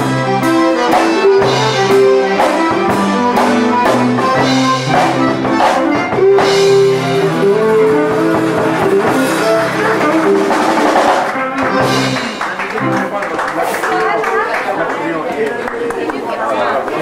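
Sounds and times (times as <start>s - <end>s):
button accordion: 0.0s - 13.1s
steady beat: 0.0s - 13.2s
strummed guitar: 0.0s - 13.2s.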